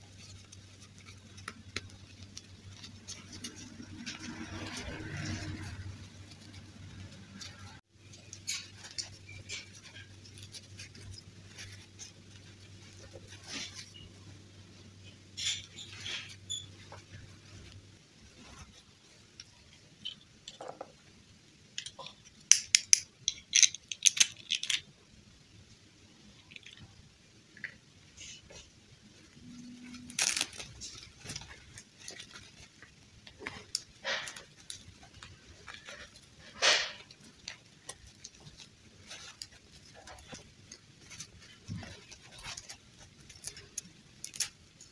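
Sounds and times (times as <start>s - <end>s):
fabric rustling: 0.0s - 20.0s, 28.1s - 44.9s
plastic dolls clicking: 21.7s - 24.9s.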